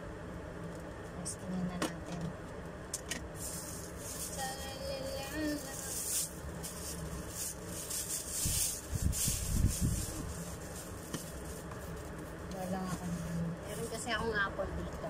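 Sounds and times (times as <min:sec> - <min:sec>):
plastic bag crinkling: 0:03.4 - 0:14.0.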